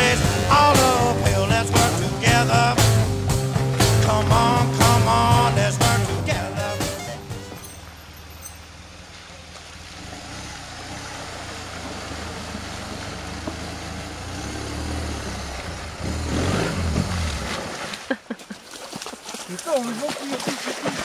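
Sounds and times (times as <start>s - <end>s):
motorcycle engine running: 0.0s - 8.0s, 9.9s - 17.6s
water splashing: 0.0s - 21.0s.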